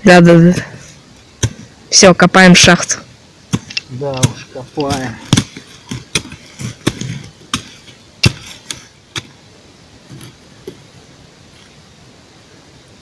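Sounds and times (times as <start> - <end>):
shovel chopping into soil: 0.4 - 1.7, 3.5 - 9.4, 10.1 - 10.8.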